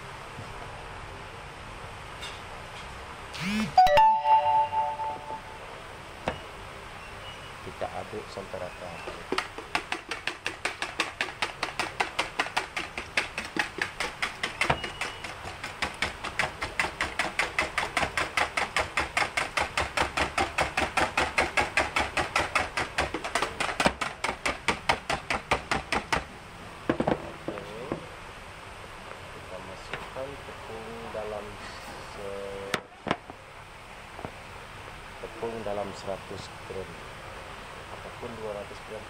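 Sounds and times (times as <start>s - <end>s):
whisk clicking in plastic tub: 9.2s - 26.2s.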